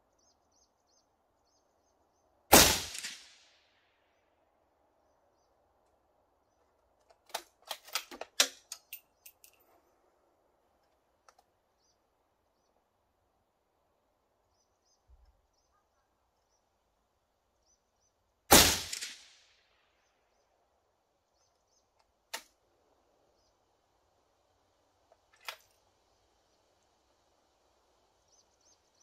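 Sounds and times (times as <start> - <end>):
rifle shot: 2.5 - 3.6, 18.5 - 19.5
faint bird chirps: 14.4 - 18.4.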